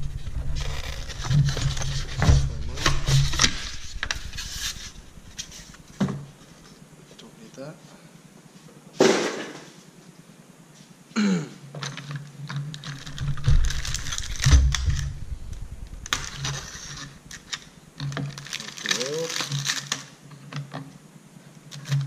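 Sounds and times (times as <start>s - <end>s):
heavy thumps: 0.0s - 6.7s, 13.0s - 18.3s
plastic wrap crinkling: 12.8s - 20.1s.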